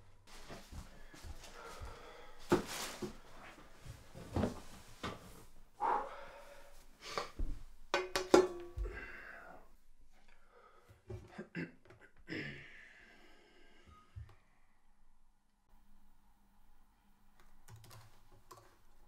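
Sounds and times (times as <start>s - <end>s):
footsteps: 0.3s - 5.3s
clothing rustle: 0.3s - 5.7s.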